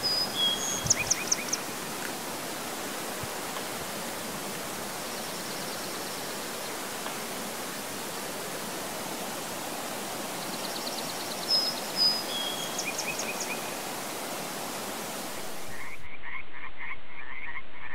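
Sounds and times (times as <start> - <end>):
songbird trills and whistles: 0.0 - 1.6, 11.4 - 13.6
creek water flowing: 0.0 - 16.0.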